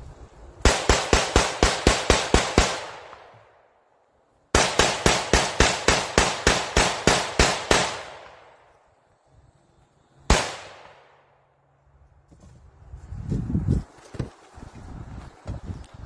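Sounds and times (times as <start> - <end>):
pistol shots echoing: 0.6 - 3.6, 4.5 - 8.7, 10.3 - 11.2.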